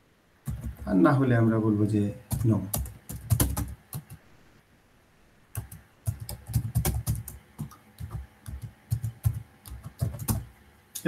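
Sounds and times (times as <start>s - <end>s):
computer keyboard typing: 0.4s - 1.0s, 2.2s - 4.2s, 5.5s - 10.6s.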